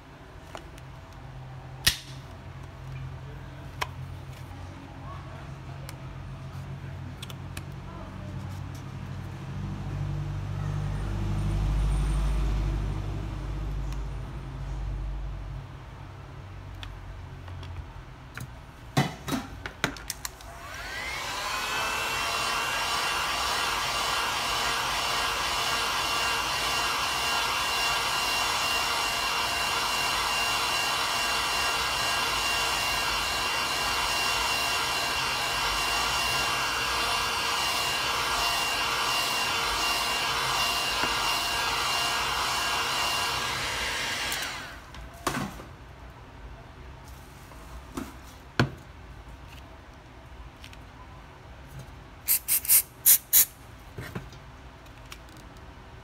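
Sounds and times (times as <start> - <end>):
heat gun blowing: 20.4 - 44.8, 52.3 - 53.6
aerosol spray can hissing: 52.3 - 53.6.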